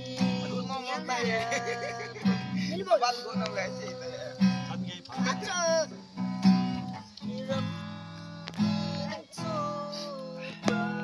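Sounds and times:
man singing: 0.0s - 6.1s, 7.1s - 11.0s
acoustic guitar strumming: 0.0s - 11.0s.

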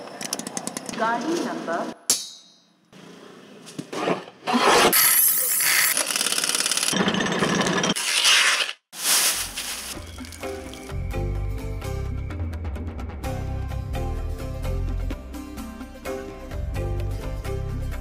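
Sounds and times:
pneumatic impact wrench rattling: 5.0s - 7.0s.

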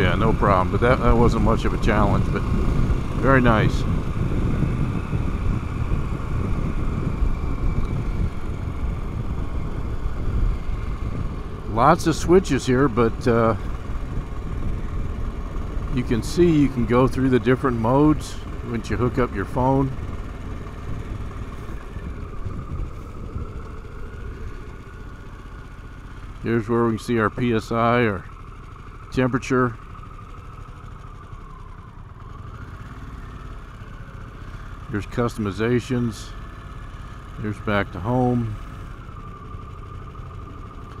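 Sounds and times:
motorcycle engine running: 0.0s - 41.0s
wind and road noise: 0.0s - 41.0s
wind noise on microphone: 2.1s - 11.7s, 21.0s - 23.6s.

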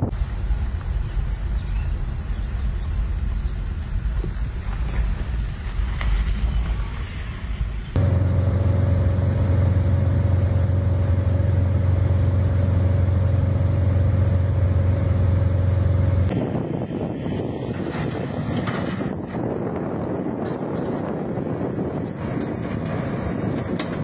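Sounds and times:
aircraft engine drone: 7.6s - 20.3s
wind buffeting microphone: 7.9s - 24.0s.

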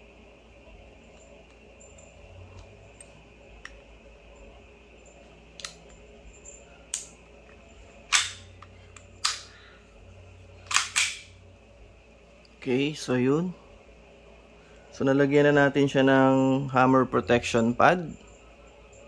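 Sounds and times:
pistol slide metallic clacks: 8.1s - 9.5s, 10.6s - 11.4s.

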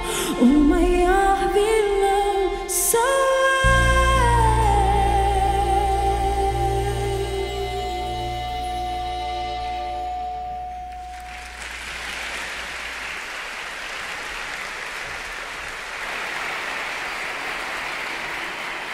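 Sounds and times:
audience applauding: 11.0s - 18.9s.

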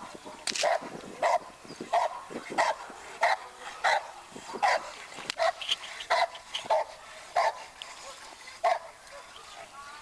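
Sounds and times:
dog barking: 0.6s - 7.6s, 8.6s - 9.2s.

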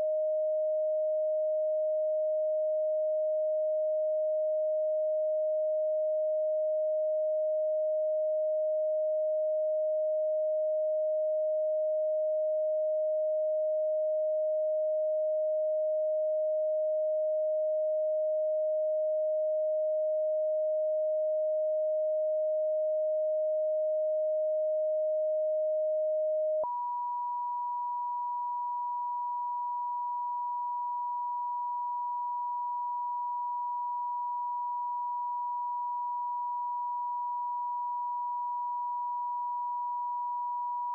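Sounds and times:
steady sine tone: 0.0s - 40.9s.

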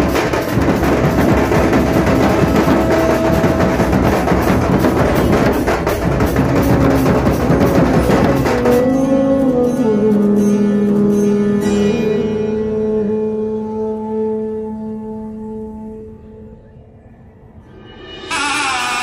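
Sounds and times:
steel drums beaten fast: 0.0s - 12.0s, 17.6s - 19.0s.

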